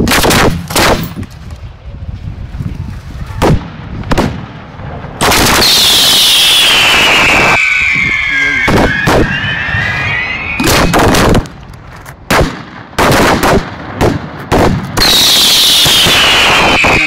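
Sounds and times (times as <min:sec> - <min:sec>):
firework bangs: 0:00.0 - 0:01.2, 0:03.4 - 0:17.0
firework continuous rush: 0:00.0 - 0:17.0
firework falling whistle: 0:05.4 - 0:11.6, 0:15.0 - 0:17.0.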